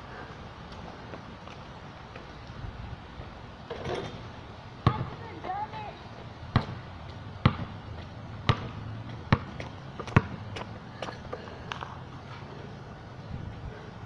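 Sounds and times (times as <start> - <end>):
basketball bouncing on asphalt: 4.8 - 12.4.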